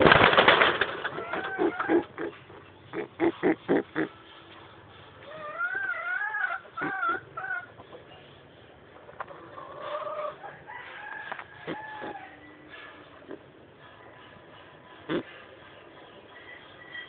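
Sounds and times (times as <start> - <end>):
chicken clucking: 1.0 - 2.4, 5.2 - 12.4.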